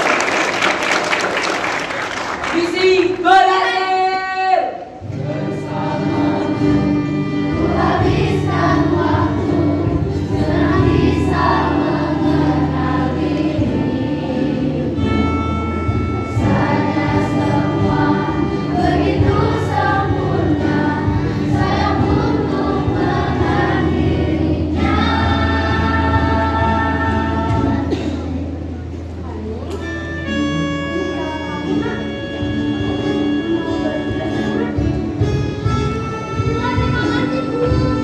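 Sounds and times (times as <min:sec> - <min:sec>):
choir singing: 0:05.0 - 0:28.2
sustained bass accompaniment: 0:05.0 - 0:38.0.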